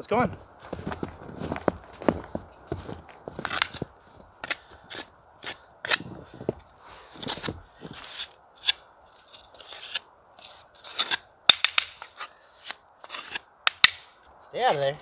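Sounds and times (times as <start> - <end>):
trowel scraping snow: 3.4 - 6.2, 7.0 - 11.3, 12.0 - 13.5.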